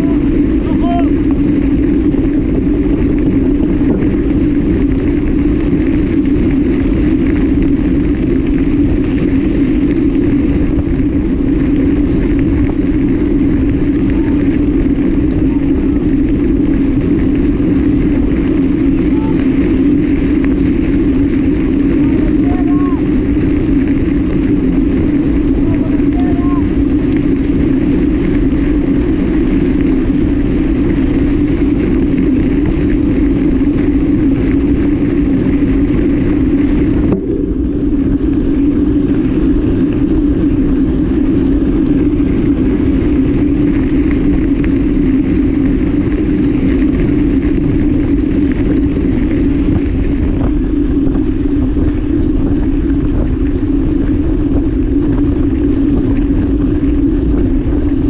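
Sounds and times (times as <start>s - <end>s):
tyres rumbling on gravel: 0.0s - 58.0s
wind on microphone: 0.0s - 58.0s.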